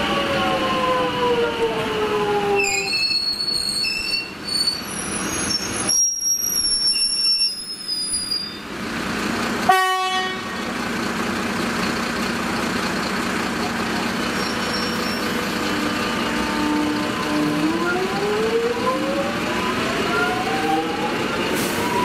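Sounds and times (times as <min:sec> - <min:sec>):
train cars rumbling: 0:00.0 - 0:22.0
wheels squealing on rails: 0:02.5 - 0:08.7, 0:13.6 - 0:22.0
train horn toot: 0:09.7 - 0:10.6, 0:15.8 - 0:17.5
train motor whine: 0:13.9 - 0:22.0.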